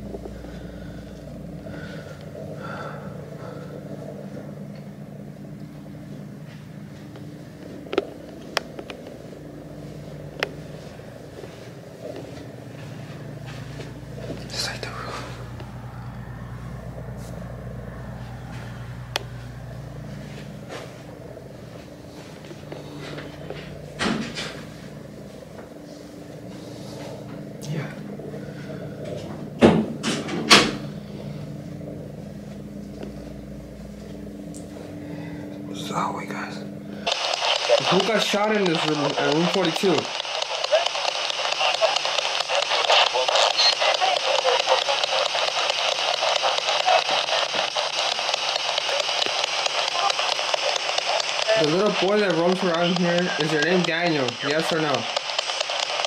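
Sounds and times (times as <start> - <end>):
steady low hum: 0.0 - 56.0
sharp clicks: 37.1 - 56.0.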